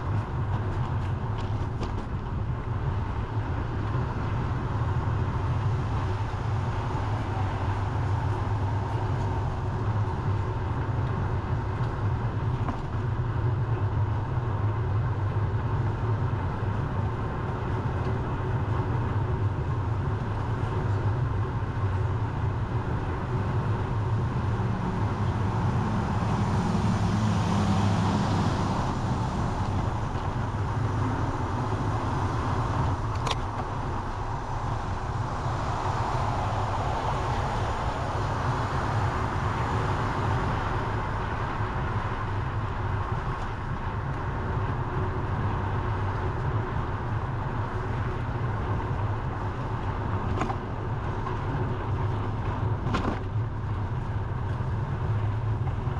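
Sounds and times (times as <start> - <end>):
bicycle rolling: 0.0 - 27.8, 28.8 - 55.9
road traffic: 0.0 - 55.9
wind noise on microphone: 0.0 - 55.9
car passing: 22.6 - 43.2.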